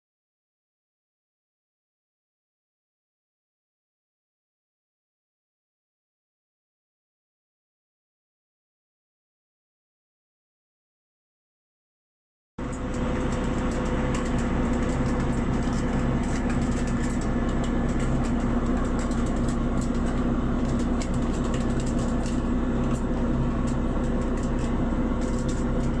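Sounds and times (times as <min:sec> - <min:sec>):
boat engine humming: 0:12.6 - 0:26.0.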